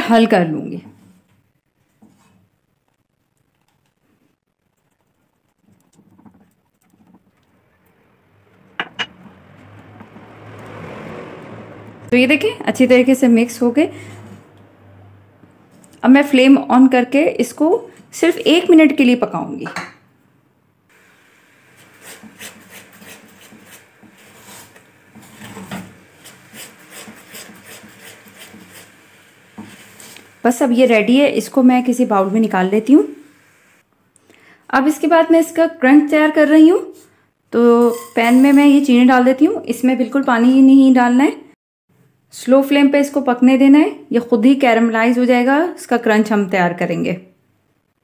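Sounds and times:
caramel hissing and bubbling: 20.9 - 31.1, 32.1 - 33.9
spatula scraping: 21.6 - 30.5, 37.8 - 38.8.

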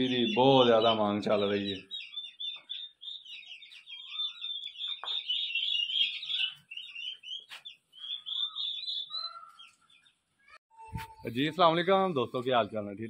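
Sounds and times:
turkey poults peeping: 0.0 - 10.3.

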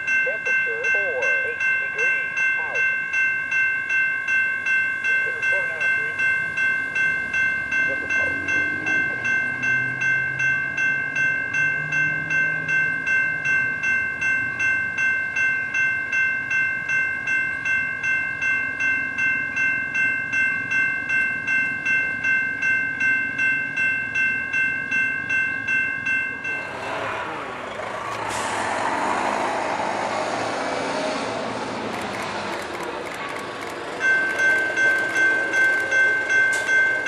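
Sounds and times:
train bell ringing: 0.0 - 37.0.

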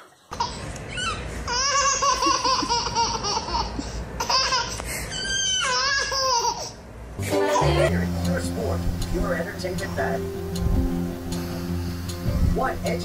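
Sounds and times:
baby laughing: 0.3 - 7.9.

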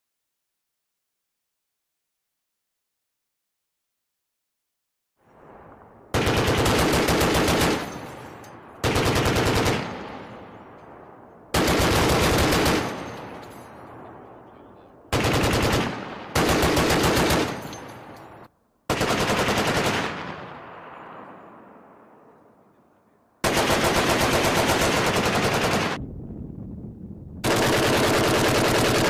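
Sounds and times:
gunfire echo: 5.3 - 22.3.

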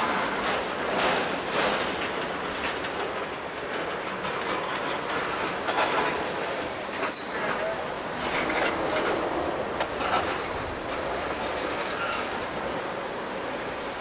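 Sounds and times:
train wheels clicking over rail joints: 0.1 - 12.8
high wheel squeals: 5.9 - 8.7.

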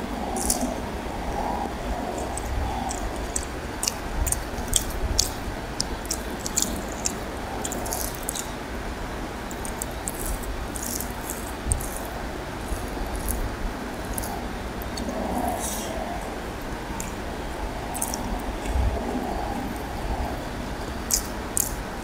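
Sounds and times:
chewing: 0.0 - 8.6, 9.4 - 16.3, 16.9 - 20.4, 21.0 - 21.9
background hiss: 0.0 - 22.0
hand squishing rice and curry: 0.2 - 8.6.

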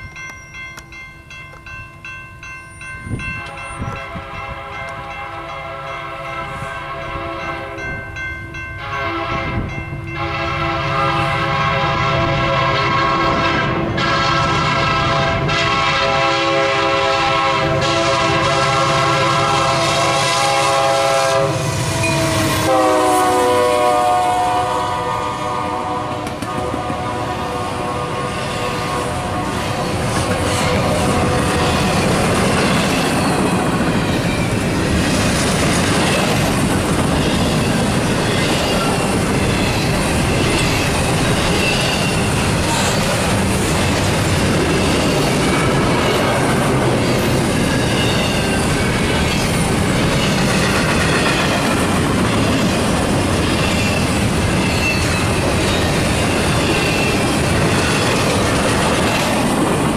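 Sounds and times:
locomotive horn blasts: 3.4 - 7.9, 8.8 - 32.1.

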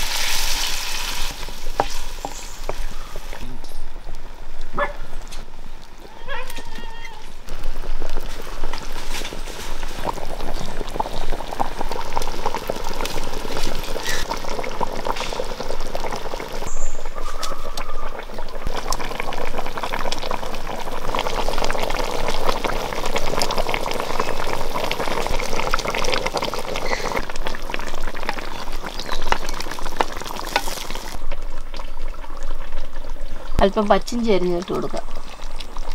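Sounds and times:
curry bubbling in a pot: 7.5 - 35.9.

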